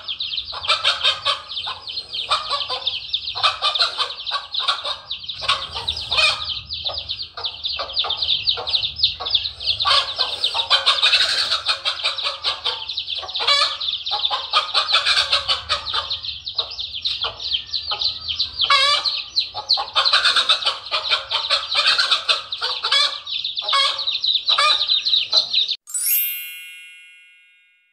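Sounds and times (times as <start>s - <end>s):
hen clucking loudly: 0.0s - 25.6s
chicks peeping: 0.0s - 25.8s
bright chime: 25.8s - 27.9s.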